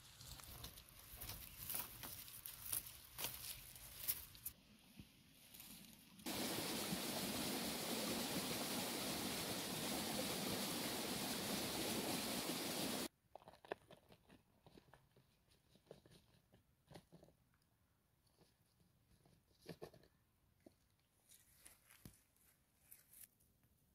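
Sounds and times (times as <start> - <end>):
loud rustling hiss: 6.3 - 13.1.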